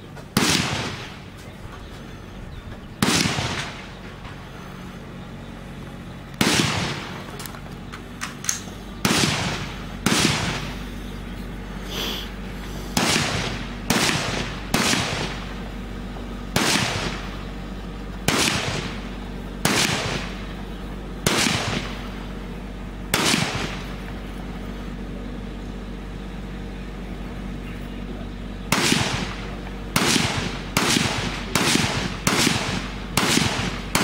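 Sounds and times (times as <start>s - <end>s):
rifle shots with echo: 0.3s - 1.4s, 2.9s - 4.6s, 5.6s - 11.0s, 12.9s - 24.7s, 28.7s - 34.0s.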